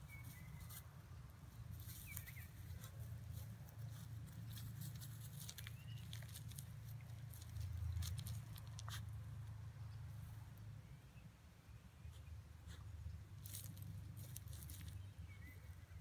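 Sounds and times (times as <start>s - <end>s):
dogs scratching in dry grass: 0.0s - 9.2s, 13.4s - 15.3s.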